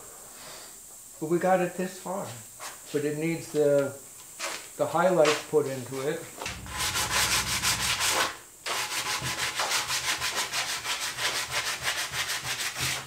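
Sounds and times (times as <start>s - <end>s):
sanding pad rubbing wood: 6.5s - 13.0s.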